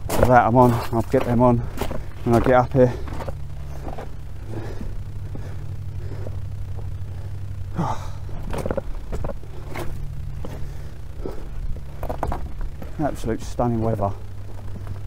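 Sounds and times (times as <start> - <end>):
footsteps on stones: 0.0 - 7.2, 8.2 - 15.0
low steady rumble: 0.0 - 15.0
man breathing hard: 2.9 - 8.4, 10.4 - 11.8.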